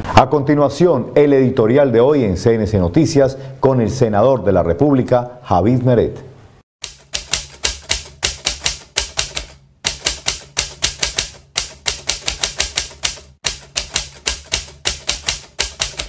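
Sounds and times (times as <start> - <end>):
typewriter keys clacking: 6.8 - 16.0.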